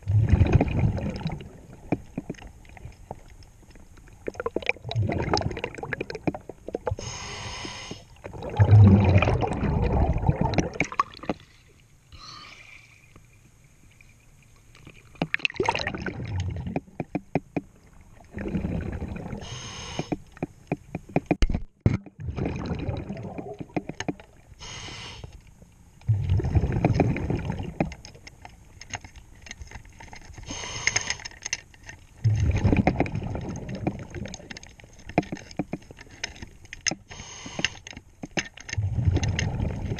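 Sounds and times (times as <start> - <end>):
bubbling exhale: 4.3 - 12.8, 18.3 - 20.1, 26.1 - 27.8, 32.2 - 34.4, 38.8 - 39.9
regulator hiss on inhale: 7.0 - 8.2, 11.4 - 13.2, 19.4 - 20.3, 24.6 - 25.4, 30.4 - 31.4, 37.0 - 38.0.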